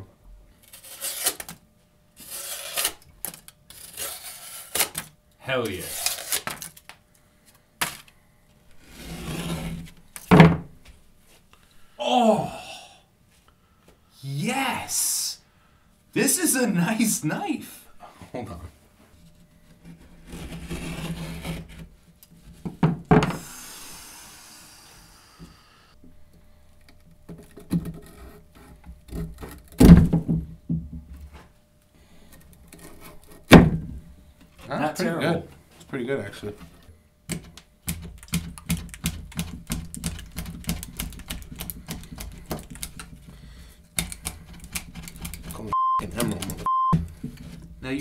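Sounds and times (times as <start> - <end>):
knife chopping plastic straw: 37.3 - 43.3, 43.9 - 45.6.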